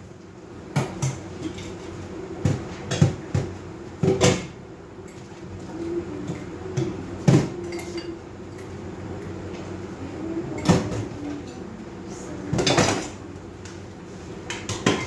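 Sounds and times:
steady low hum: 0.0 - 15.0
dishes knocking and clattering: 2.4 - 5.3, 14.5 - 15.0.

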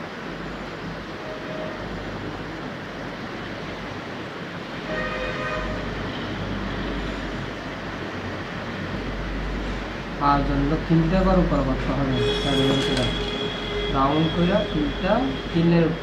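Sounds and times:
horn sounding: 12.1 - 15.9.

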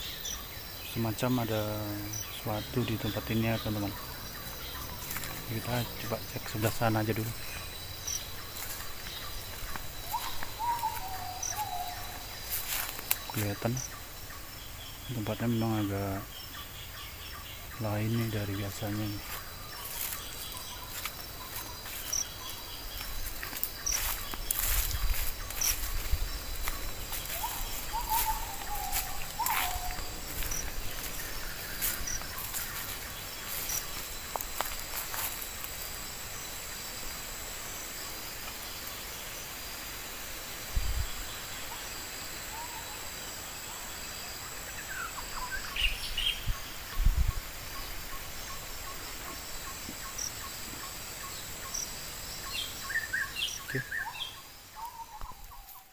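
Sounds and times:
birds chirping and whistling: 0.0 - 34.3
insects droning: 0.0 - 55.9
leaves rustling and crackling: 0.9 - 42.4.

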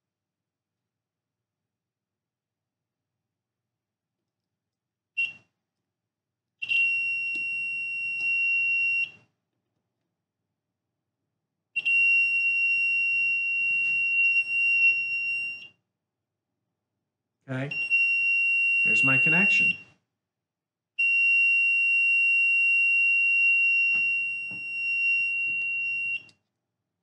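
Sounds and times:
piezo buzzer beeping: 17.7 - 19.8.

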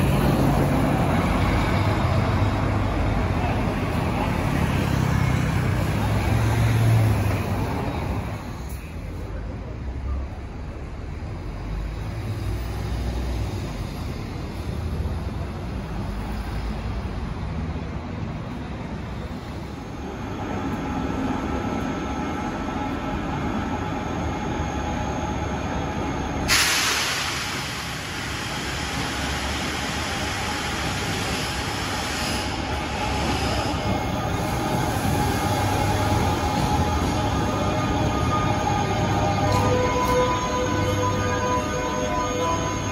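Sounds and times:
train rumbling: 0.0 - 42.9
sudden hiss: 26.5 - 33.7.

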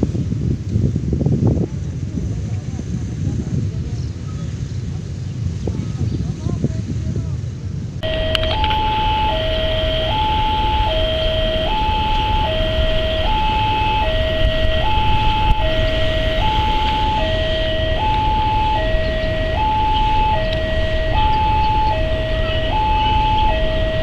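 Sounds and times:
level crossing two-tone alarm: 8.0 - 24.0
low rumble: 8.0 - 24.0.

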